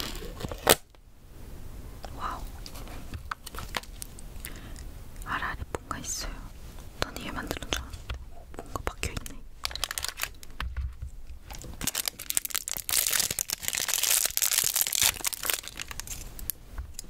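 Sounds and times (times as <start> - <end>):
plastic wrapper crinkling and tearing: 0.0 - 0.8, 2.7 - 4.2, 9.2 - 10.6, 11.4 - 17.0.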